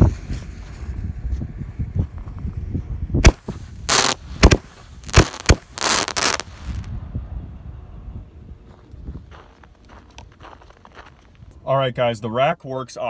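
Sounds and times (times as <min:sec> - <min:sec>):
firework hissing rushes: 0:03.2 - 0:06.9
firework shells banging: 0:03.3 - 0:06.8.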